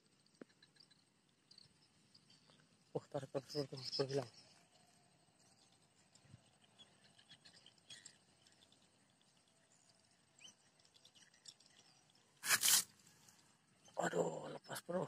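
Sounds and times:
soft high chirps and ticks: 0.0s - 14.0s.

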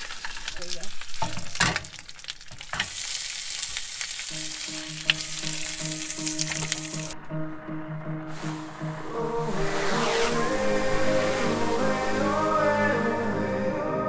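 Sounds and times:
food sizzling in a pan: 0.0s - 7.2s
background music with pulsing tone: 4.7s - 14.0s.

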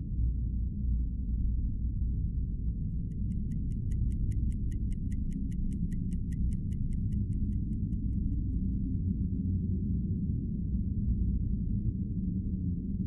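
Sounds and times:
rapid clock-like ticking: 3.1s - 8.5s.

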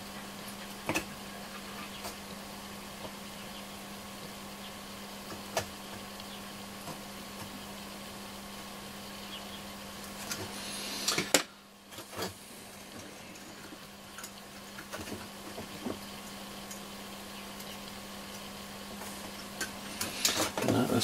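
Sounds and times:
steady low hum: 0.0s - 21.0s.

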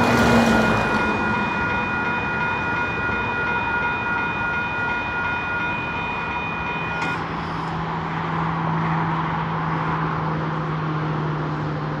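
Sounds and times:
railroad crossing bell ringing: 0.0s - 8.1s.

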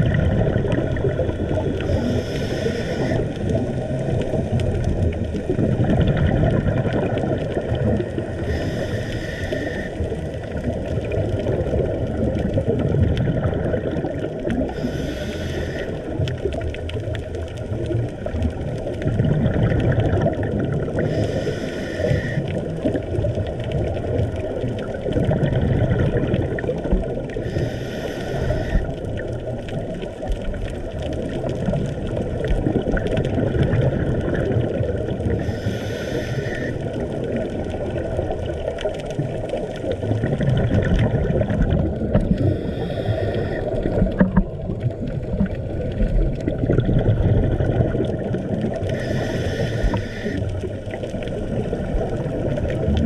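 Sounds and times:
muffled underwater rumble: 0.0s - 53.0s
regulator bubbles hissing: 0.0s - 53.0s.

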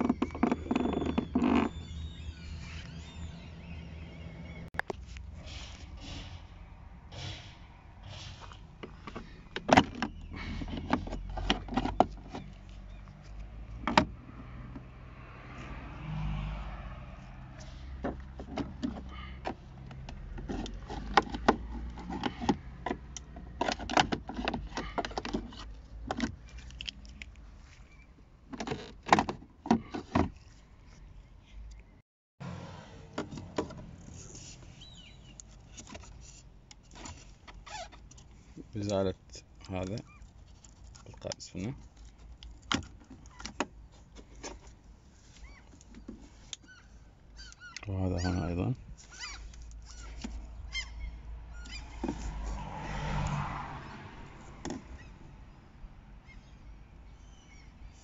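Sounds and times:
plastic scraping and rustling: 0.0s - 3.2s, 8.4s - 13.4s.

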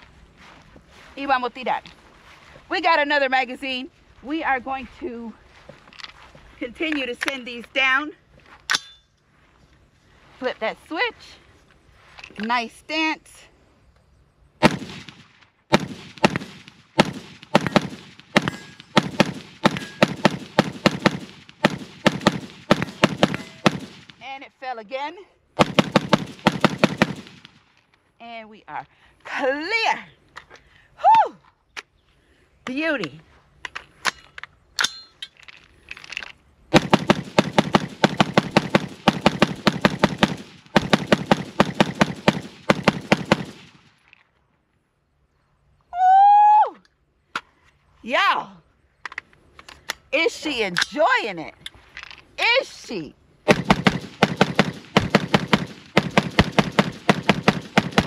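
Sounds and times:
rifle firing rapid shots: 14.6s - 24.2s, 25.6s - 27.6s, 36.7s - 43.9s, 53.5s - 58.0s.

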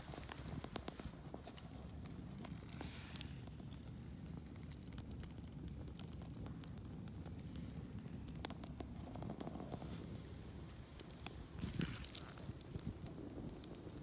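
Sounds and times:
low fire rumble: 0.0s - 14.0s
wood fire crackling and popping: 0.0s - 14.0s.

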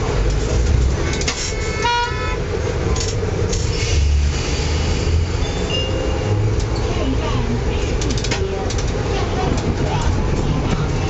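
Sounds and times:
tram rumbling on track: 0.0s - 11.0s
tram horn toot: 1.0s - 2.6s.

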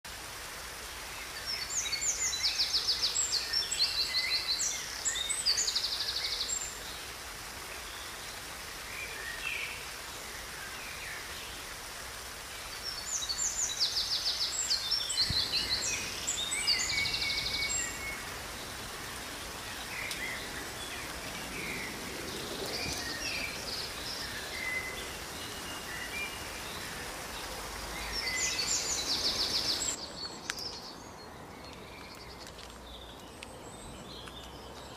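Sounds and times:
steady outdoor hiss: 0.0s - 34.9s
quiet bird chirps: 1.0s - 34.9s
songbird trilling song: 12.9s - 18.9s, 19.6s - 34.9s.

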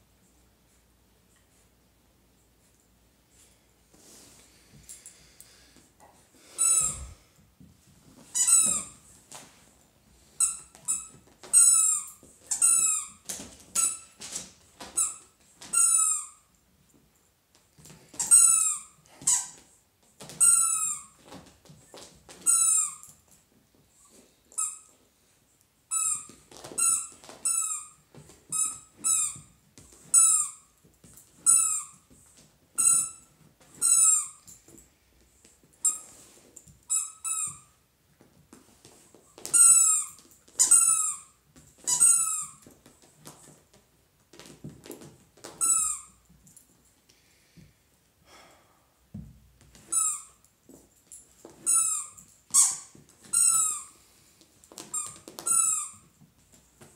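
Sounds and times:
squeaky toy squeaking: 6.6s - 7.1s, 8.3s - 9.0s, 10.4s - 14.1s, 14.9s - 16.4s, 18.2s - 19.6s, 20.4s - 21.2s, 22.4s - 23.1s, 25.9s - 29.5s, 30.1s - 30.7s, 31.4s - 32.0s, 32.8s - 34.4s, 36.9s - 37.7s, 39.5s - 42.6s, 45.6s - 46.2s, 49.9s - 50.4s, 51.6s - 53.9s, 54.8s - 56.1s.

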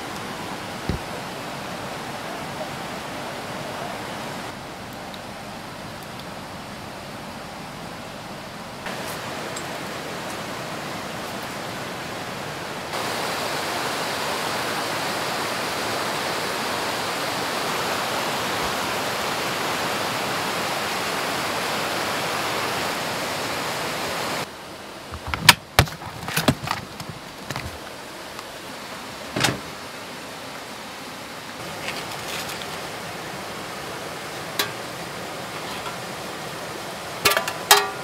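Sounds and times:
river rushing over rocks: 0.0s - 7.9s, 8.6s - 38.0s
knocks and clicks of handling: 25.1s - 27.9s.

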